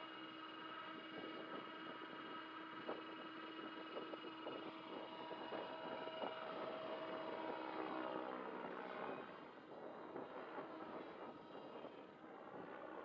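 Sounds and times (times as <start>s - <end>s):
model helicopter rotor whine: 0.1s - 13.0s.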